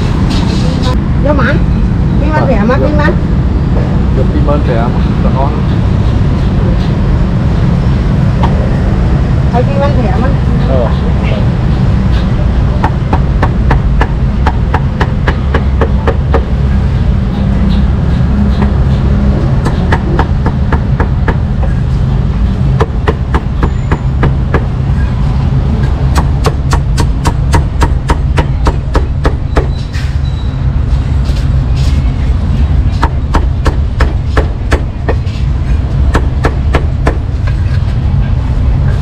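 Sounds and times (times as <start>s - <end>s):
cleaver chopping meat: 19.6s - 21.4s, 26.1s - 29.8s, 33.0s - 35.2s.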